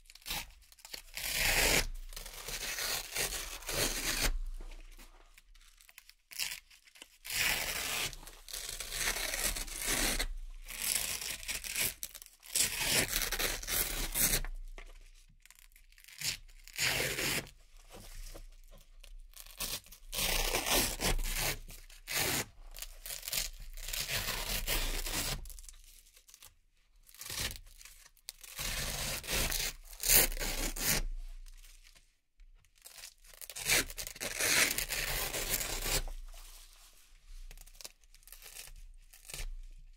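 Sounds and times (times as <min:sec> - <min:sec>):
hook-and-loop patches ripping: 0:00.1 - 0:17.4, 0:32.8 - 0:39.8.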